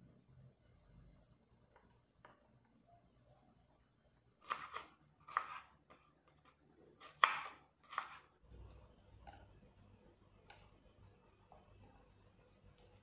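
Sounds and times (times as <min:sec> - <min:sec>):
knife chopping on wooden board: 0:04.4 - 0:08.3.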